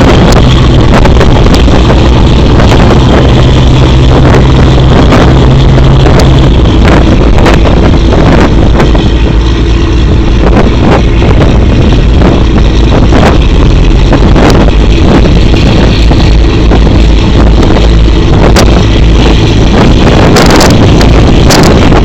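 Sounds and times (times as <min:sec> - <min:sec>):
boat diesel engines rumbling: 0:00.0 - 0:22.0
humming tone: 0:00.0 - 0:22.0
wind buffeting the microphone: 0:00.0 - 0:22.0.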